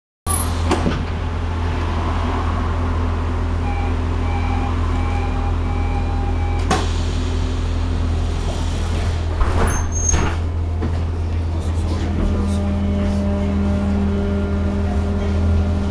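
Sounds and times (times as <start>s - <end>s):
tram equipment humming: 0.3s - 15.9s
short electronic beeps: 3.6s - 6.7s.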